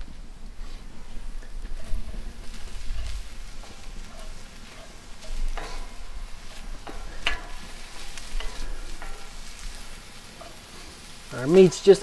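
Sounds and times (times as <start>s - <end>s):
meat sizzling in a skillet: 0.0s - 12.0s
utensil scraping a pan: 0.6s - 11.4s.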